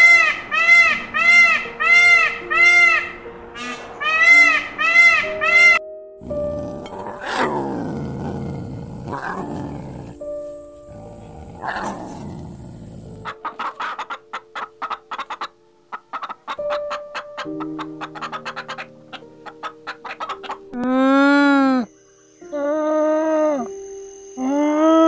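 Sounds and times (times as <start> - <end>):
background music with sustained notes: 0.0 - 25.0
chickens clucking: 13.0 - 20.8.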